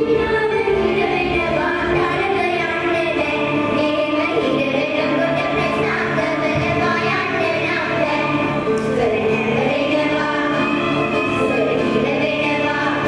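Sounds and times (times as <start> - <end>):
girls singing into microphones: 0.0 - 13.0
instrumental accompaniment: 0.0 - 13.0.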